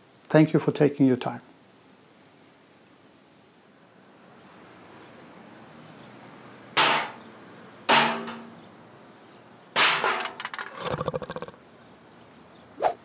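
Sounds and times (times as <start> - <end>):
rattle of small hits: 7.9 - 8.6, 9.8 - 11.2.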